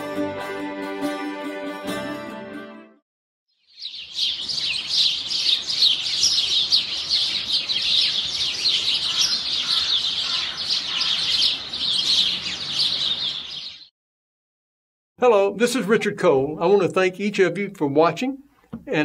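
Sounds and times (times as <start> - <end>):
songbirds chirping: 3.5 - 13.9.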